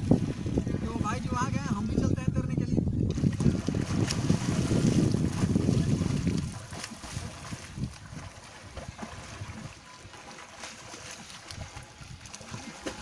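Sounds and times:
wind noise on microphone: 0:00.0 - 0:09.9, 0:11.2 - 0:13.0
faint swimming splashes: 0:03.1 - 0:13.0.

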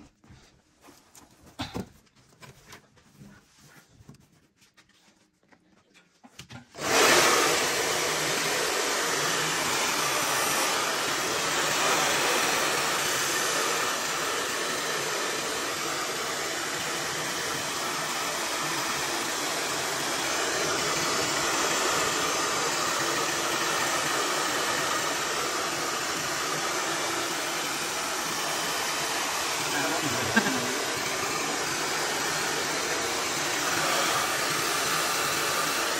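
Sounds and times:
hair dryer blowing: 0:06.7 - 0:35.9.

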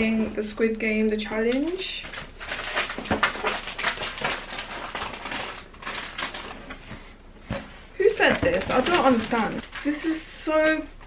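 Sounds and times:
crackles and knocks: 0:01.4 - 0:10.0
packaging rustling and crinkling: 0:01.5 - 0:10.8.

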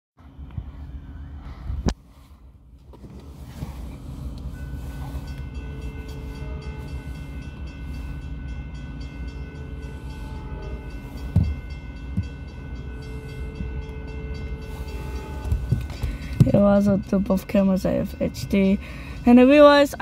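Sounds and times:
train rumble: 0:00.2 - 0:20.0
train horn: 0:04.5 - 0:20.0.

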